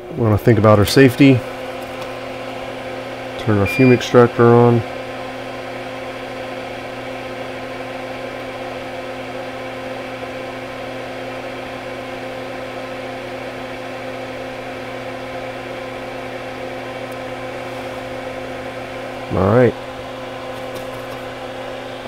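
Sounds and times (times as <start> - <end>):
extractor fan humming: 0.0 - 22.0.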